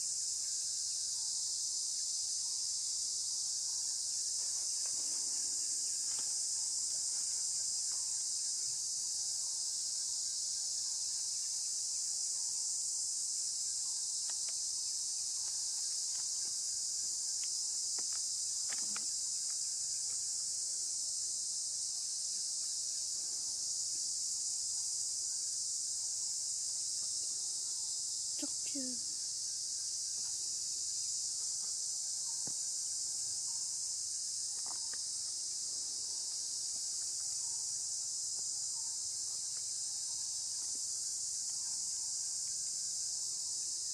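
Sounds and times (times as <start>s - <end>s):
high-pitched insect chorus: 0.0s - 43.9s
faint clicks: 14.2s - 14.6s.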